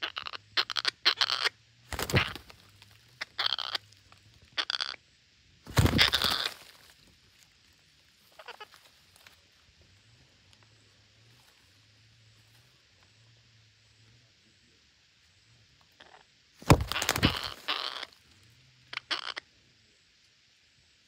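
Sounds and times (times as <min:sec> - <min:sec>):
parakeets squawking: 0:00.0 - 0:02.5, 0:03.2 - 0:03.8, 0:04.6 - 0:05.0, 0:05.7 - 0:06.6, 0:08.3 - 0:08.7, 0:16.0 - 0:18.1, 0:18.9 - 0:19.4
wing flapping: 0:01.9 - 0:03.1, 0:05.7 - 0:07.1, 0:16.6 - 0:18.1.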